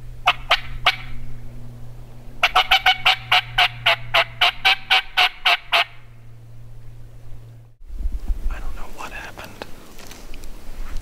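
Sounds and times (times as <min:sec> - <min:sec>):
turkey clucks: 0:00.2 - 0:01.2, 0:02.4 - 0:06.0
turkey yelping: 0:00.2 - 0:01.3, 0:02.4 - 0:06.1.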